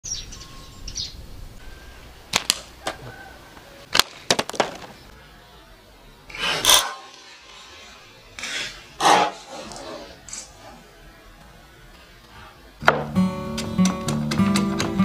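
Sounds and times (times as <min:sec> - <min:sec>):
birds chirping: 0:00.0 - 0:15.0
slingshot cracks and snaps: 0:02.3 - 0:03.0
plastic bottle hit: 0:03.9 - 0:05.0.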